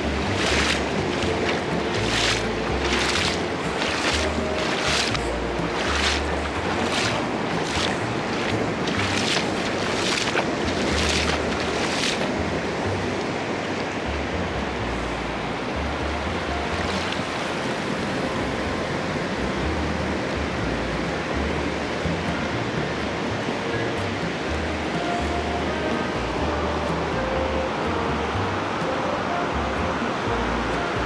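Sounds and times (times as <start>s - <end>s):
rush of spray: 0.0s - 13.7s
water splashing and dripping: 0.0s - 15.1s, 15.8s - 27.1s
music with low bass line: 0.0s - 17.4s, 18.2s - 31.0s.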